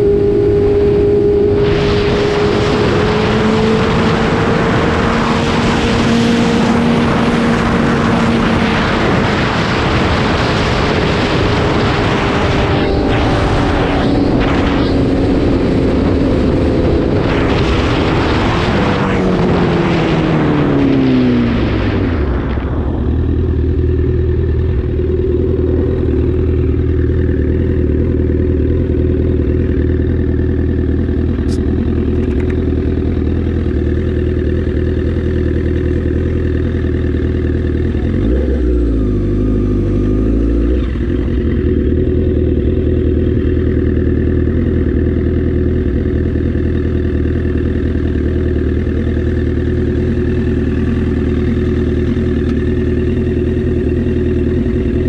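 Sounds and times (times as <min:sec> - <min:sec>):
wind rush on microphone: 0:00.0 - 0:24.1
motorcycle engine revving: 0:00.0 - 0:55.0.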